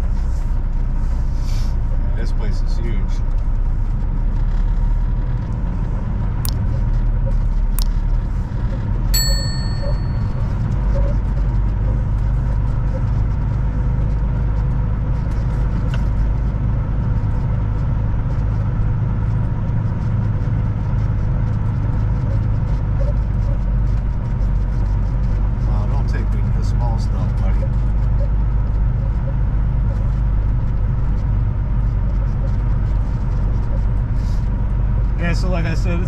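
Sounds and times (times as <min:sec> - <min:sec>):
diesel engine low rumble: 0:00.0 - 0:36.0
short metallic ding: 0:09.2 - 0:10.4.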